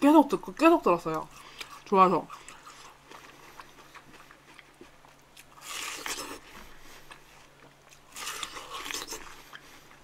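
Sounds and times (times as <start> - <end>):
faint chewing: 0.4 - 10.0
crisp bites into watermelon: 5.6 - 6.5, 8.1 - 9.4.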